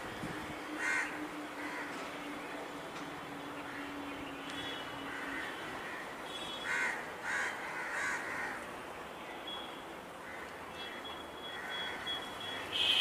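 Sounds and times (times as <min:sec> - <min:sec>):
steady background noise: 0:00.0 - 0:13.0
crow cawing: 0:00.8 - 0:01.9, 0:05.1 - 0:08.6, 0:10.2 - 0:12.7.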